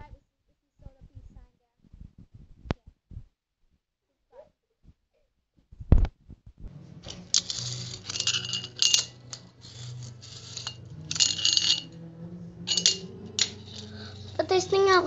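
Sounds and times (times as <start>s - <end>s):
small hard objects clattering: 7.1s - 11.9s, 12.7s - 14.5s.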